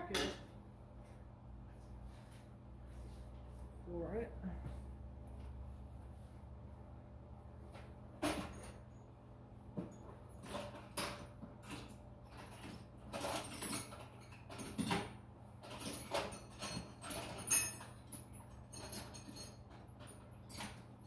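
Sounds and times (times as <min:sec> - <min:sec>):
steady low hum: 0:00.0 - 0:10.6
metal tools clinking and rattling: 0:08.2 - 0:09.0, 0:09.8 - 0:21.0.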